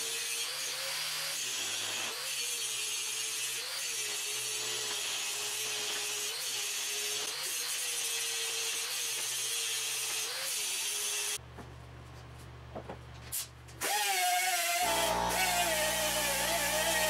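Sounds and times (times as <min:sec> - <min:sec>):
angle grinder grinding steel: 0:13.8 - 0:17.0.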